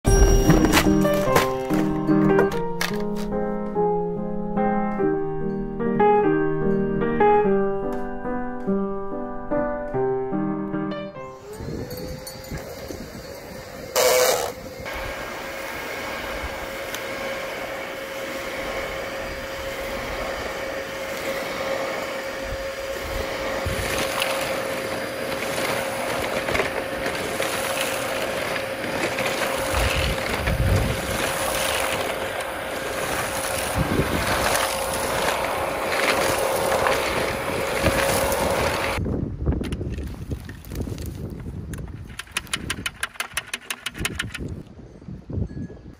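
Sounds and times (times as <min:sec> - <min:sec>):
vacuum cleaner whining: 0:00.0 - 0:03.3, 0:11.1 - 0:39.0
grit rattling in vacuum: 0:11.4 - 0:39.0, 0:41.8 - 0:44.6.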